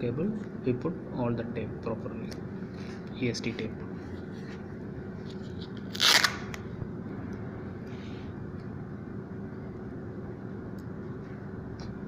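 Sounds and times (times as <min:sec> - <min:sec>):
steady low hum: 0:00.0 - 0:12.0
tape rustling: 0:05.2 - 0:06.6
adhesive tape crackling: 0:05.4 - 0:06.6.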